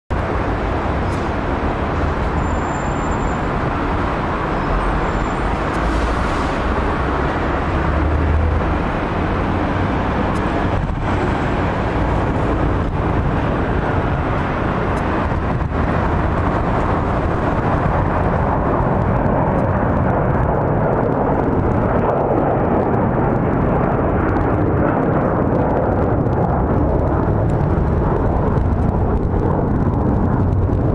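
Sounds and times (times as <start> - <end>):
jet engines roaring at takeoff: 0.1 - 30.9.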